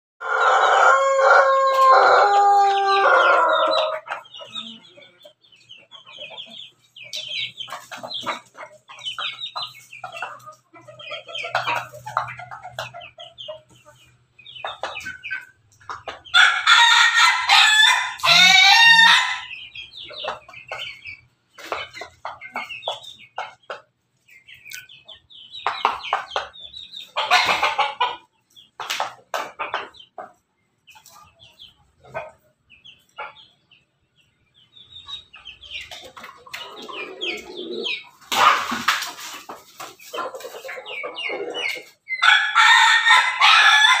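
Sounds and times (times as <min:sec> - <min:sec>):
roosters crowing: 0:00.2 - 0:04.7, 0:16.3 - 0:19.6, 0:40.9 - 0:44.0
chickens clucking: 0:00.2 - 0:44.0.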